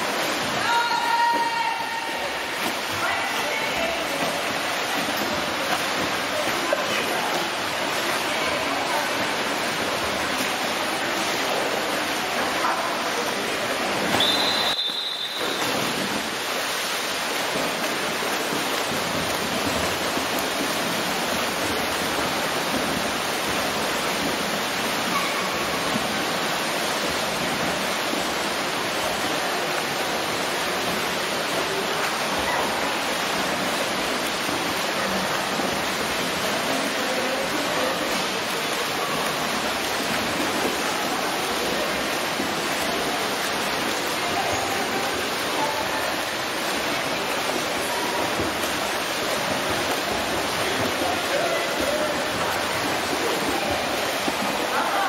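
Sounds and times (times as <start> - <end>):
swimmers splashing: 0.0 - 55.0.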